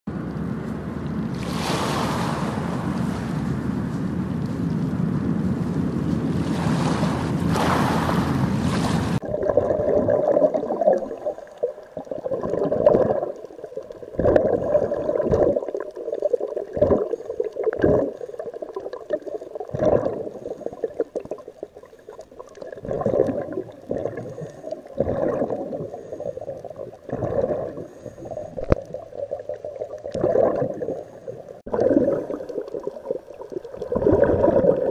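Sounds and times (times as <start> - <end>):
wind: 0.1 - 9.3
waves on a beach: 1.2 - 4.3, 6.0 - 9.2
underwater regulator breathing bubbles: 9.2 - 21.4, 22.0 - 34.9.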